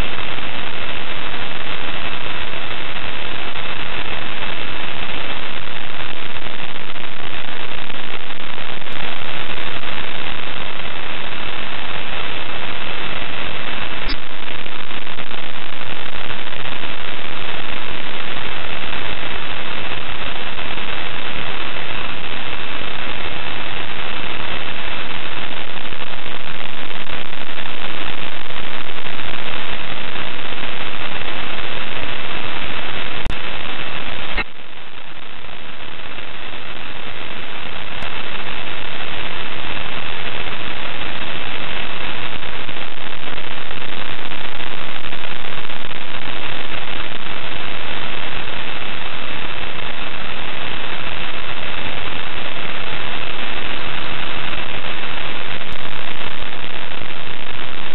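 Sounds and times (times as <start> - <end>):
static hiss: 0.0 - 57.9.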